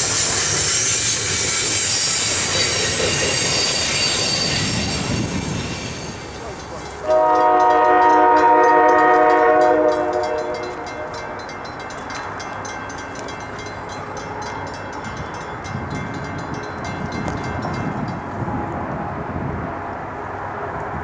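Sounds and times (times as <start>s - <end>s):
rail noise: 0.0s - 21.0s
train air horn chord: 7.0s - 11.3s.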